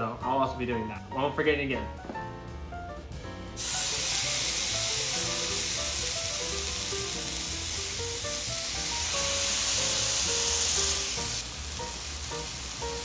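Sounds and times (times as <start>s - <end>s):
background music with bass: 0.0s - 13.0s
meat sizzling in a skillet: 3.6s - 13.0s.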